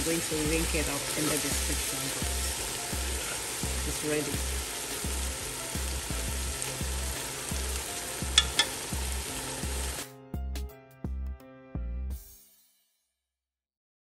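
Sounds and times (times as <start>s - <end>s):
soup sizzling in a pot: 0.0s - 10.2s
metal spoon stirring: 8.4s - 8.8s
spoon clicking against pot: 8.4s - 8.8s.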